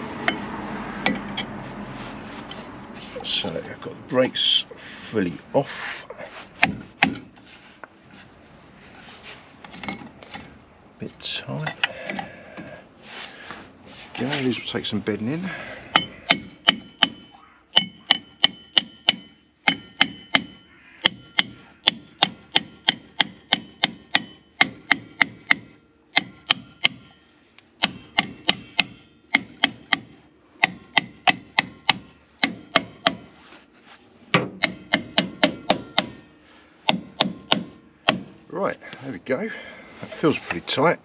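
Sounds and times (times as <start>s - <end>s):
hammer tapping metal brake drum: 15.9s - 27.2s, 27.8s - 33.3s, 34.4s - 36.3s.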